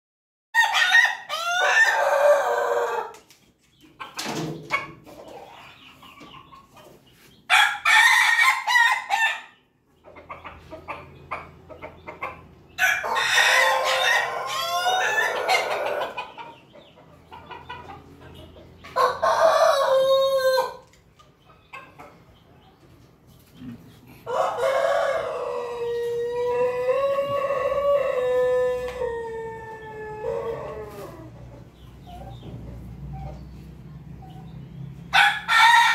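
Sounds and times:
roosters crowing: 0.6 - 3.3, 7.5 - 9.7, 12.1 - 16.6, 18.9 - 20.9, 23.6 - 33.4, 34.9 - 35.9.

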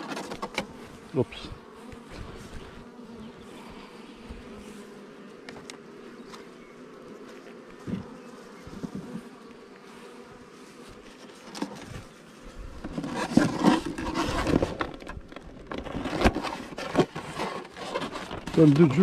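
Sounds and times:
bees buzzing: 0.0 - 19.0
hive boxes scraping and rustling: 0.0 - 19.0
light knocks on hive frames: 5.4 - 6.5.

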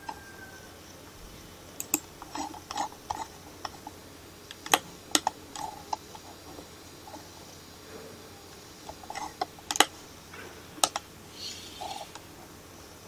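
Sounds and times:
computer mouse clicking: 1.8 - 3.9
scroll wheel ticks: 1.8 - 3.9.

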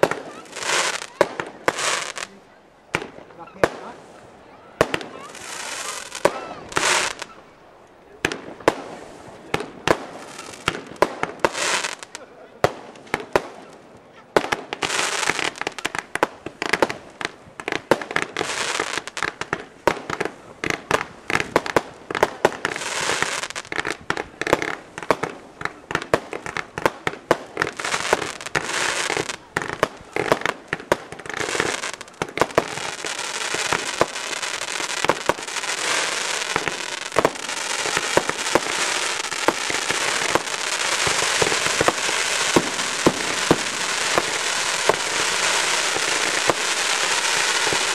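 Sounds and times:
firework crackling: 0.0 - 47.9
firework shell bursts and bangs: 31.0 - 47.9.

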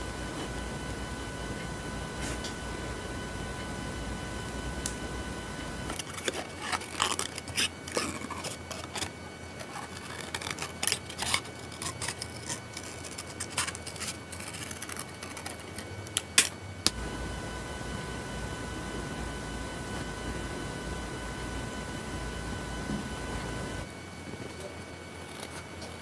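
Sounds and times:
scissors snipping paper: 5.9 - 16.5.

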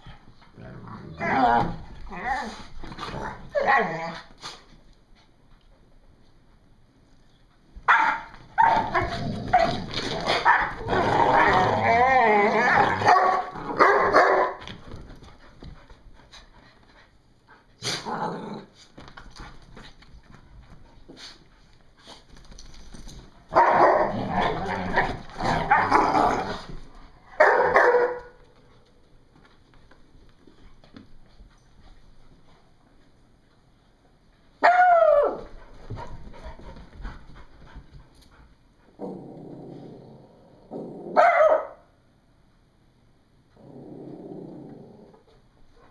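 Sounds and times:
dogs barking and growling: 0.5 - 4.3, 7.9 - 14.8, 17.8 - 18.8, 23.5 - 28.5, 38.9 - 41.8
dogs scuffling: 7.7 - 16.9, 18.7 - 33.5
dog barking: 7.9 - 8.8, 13.0 - 14.6, 23.6 - 24.1, 27.4 - 28.4, 41.2 - 41.9.

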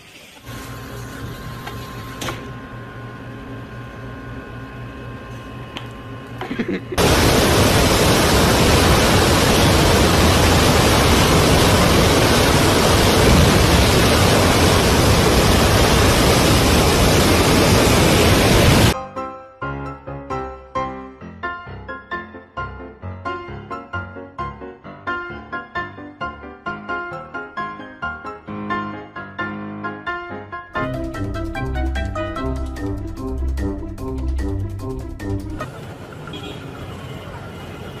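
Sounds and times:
low hum: 0.5 - 19.0
water jet rushing hiss: 7.0 - 19.0.

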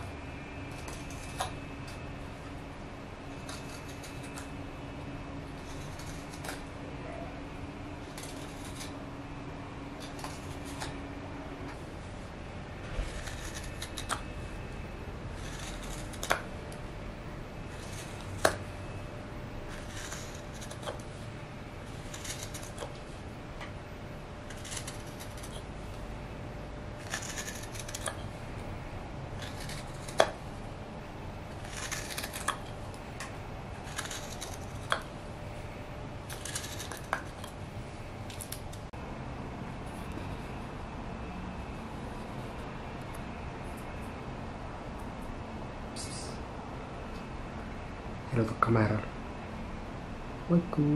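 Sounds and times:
knife scraping wood: 0.7 - 1.6, 3.3 - 4.5, 5.5 - 6.7, 8.0 - 9.0, 10.0 - 11.0, 12.9 - 14.4, 15.3 - 16.5, 17.7 - 18.6, 19.7 - 21.2, 21.8 - 23.1, 24.4 - 25.7, 27.0 - 28.3, 29.4 - 30.4, 31.5 - 32.8, 33.8 - 35.1, 36.3 - 37.6.

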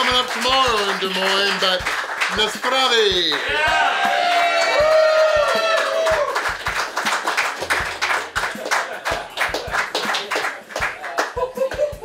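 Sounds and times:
crowd clapping: 0.0 - 12.0.

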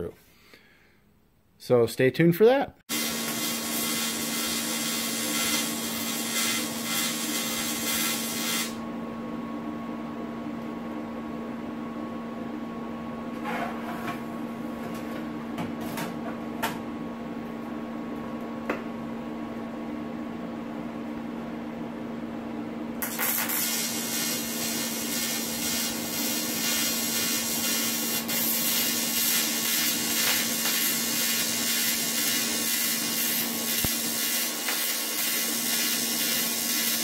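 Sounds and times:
welding arc buzzing: 2.9 - 8.8, 23.0 - 37.0.

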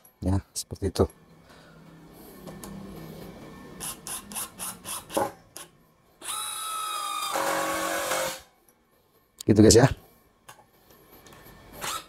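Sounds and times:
impact driver whine: 6.2 - 8.5, 11.8 - 12.0.

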